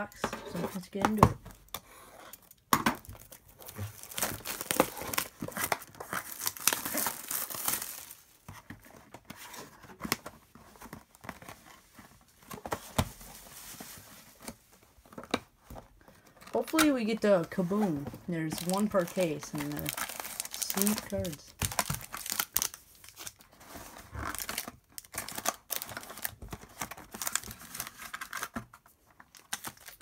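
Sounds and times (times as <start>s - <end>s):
plastic shrink-wrap crackling: 2.4s - 8.4s, 18.4s - 28.5s, 29.2s - 30.0s.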